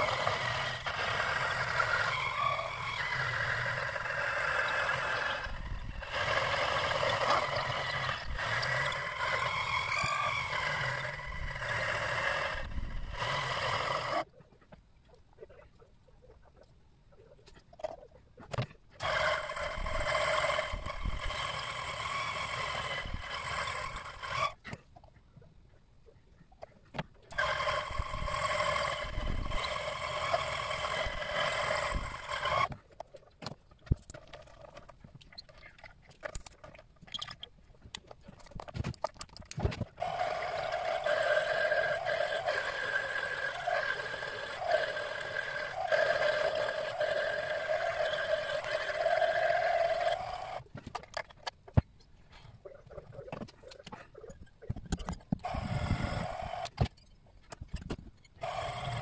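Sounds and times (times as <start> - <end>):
lathe motor whining: 19.0 - 24.6, 27.3 - 32.7, 40.0 - 50.6.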